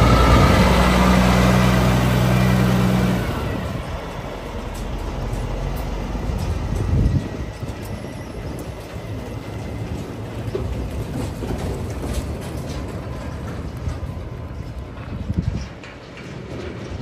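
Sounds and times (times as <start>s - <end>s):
trailers and tyres rolling: 0.0s - 17.0s
truck engine rumble: 0.0s - 17.0s
light rattles from crates: 4.2s - 17.0s.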